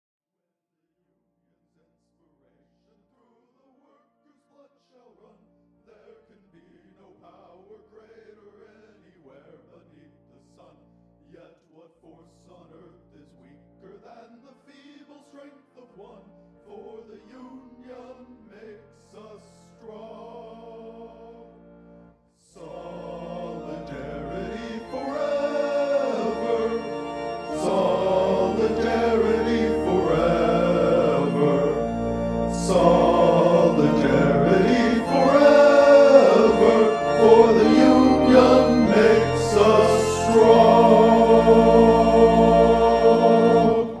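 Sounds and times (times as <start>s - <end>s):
choir singing with music: 5.0s - 44.0s
soft instrumental music: 22.6s - 44.0s.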